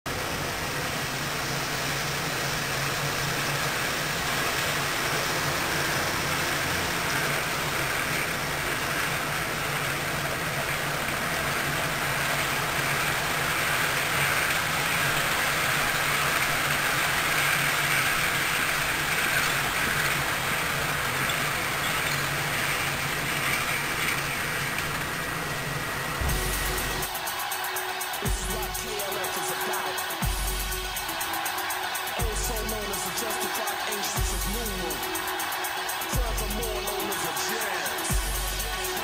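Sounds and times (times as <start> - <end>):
moving train rumbling: 0.1 - 28.8
low hum: 25.6 - 27.0.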